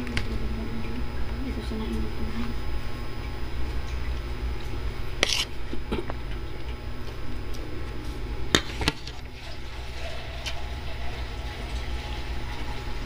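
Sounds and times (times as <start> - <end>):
steady low hum: 0.0 - 13.0
cutlery scraping ceramic plate: 5.2 - 5.5.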